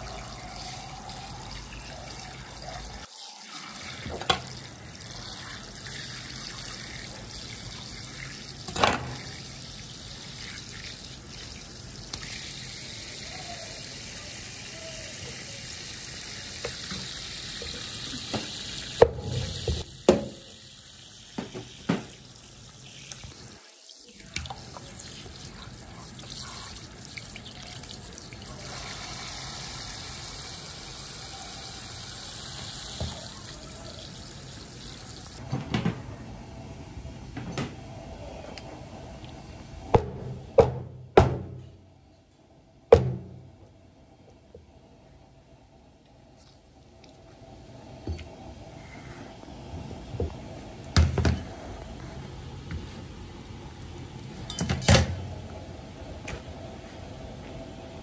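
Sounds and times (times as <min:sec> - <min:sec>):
faucet water splashing in sink: 0:00.0 - 0:13.0, 0:16.0 - 0:35.4.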